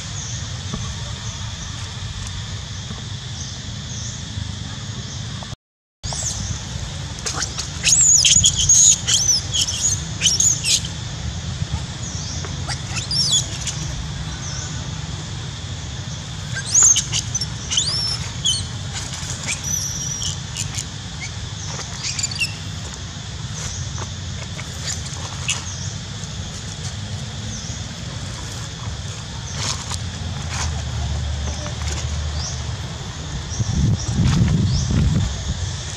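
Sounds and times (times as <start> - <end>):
steady low hum: 0.0 - 35.9
infant monkey squealing: 7.2 - 11.0, 12.6 - 14.8, 16.4 - 22.8.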